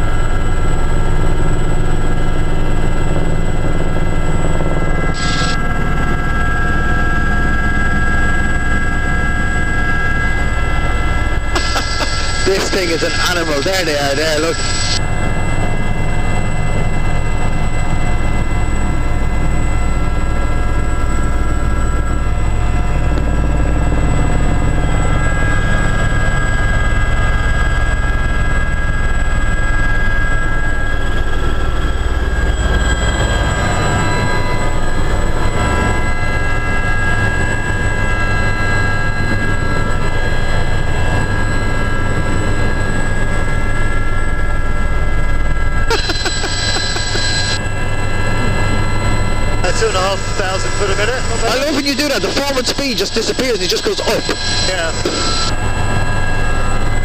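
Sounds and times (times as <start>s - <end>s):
helicopter rotor drone: 0.0s - 57.0s
turbine engine whine: 0.0s - 57.0s.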